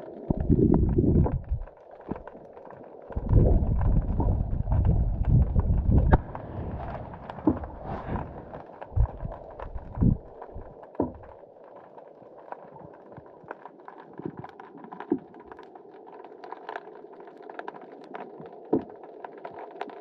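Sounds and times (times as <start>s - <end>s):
muffled underwater hiss: 2.9s - 13.4s
sharp underwater clicks: 8.8s - 11.4s.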